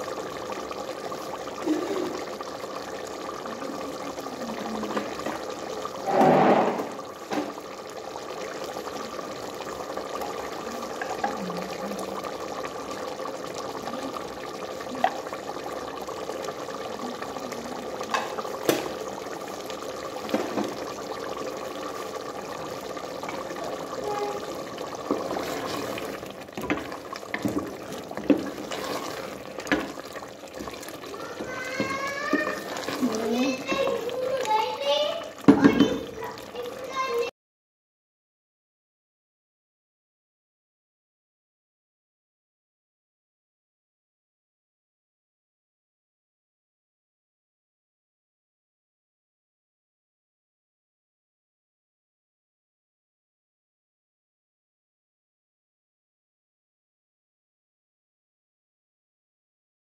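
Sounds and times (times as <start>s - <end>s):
curry bubbling in a pot: 0.0s - 37.3s
wooden spoon knocking a pot: 35.5s - 36.0s.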